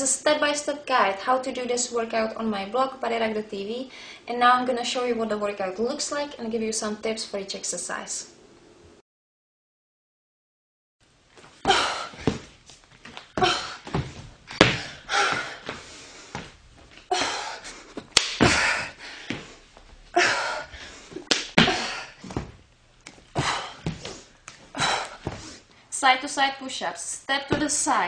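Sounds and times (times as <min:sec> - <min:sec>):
exertion breaths: 0:03.9 - 0:04.3, 0:13.4 - 0:22.5, 0:23.2 - 0:25.9
hands and feet thudding on floor: 0:11.4 - 0:17.1, 0:21.1 - 0:25.6, 0:27.5 - 0:28.0.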